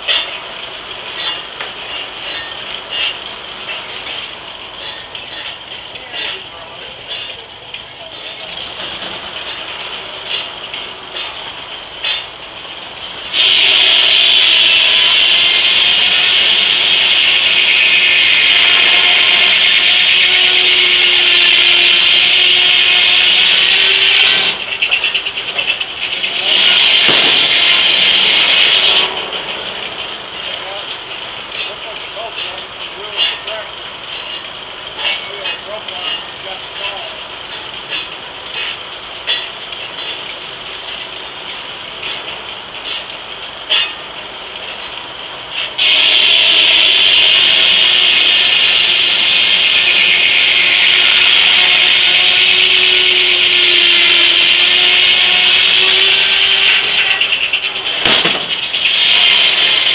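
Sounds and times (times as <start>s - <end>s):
sharp mechanical clanks: 0.0s - 13.5s, 24.2s - 46.3s, 56.6s - 59.9s
sawmill machinery clattering: 0.0s - 59.9s.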